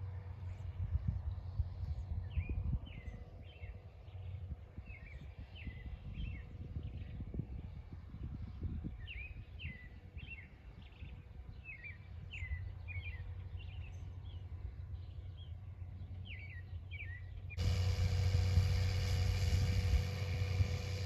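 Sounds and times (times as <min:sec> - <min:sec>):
low outdoor rumble: 0:00.0 - 0:21.0
small birds chirping: 0:08.9 - 0:21.0.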